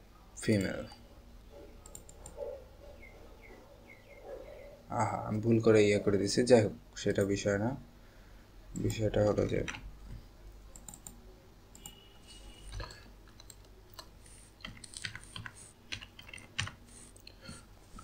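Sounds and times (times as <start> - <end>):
keyboard typing clicks: 1.8 - 2.4, 9.6 - 12.0, 12.6 - 17.3.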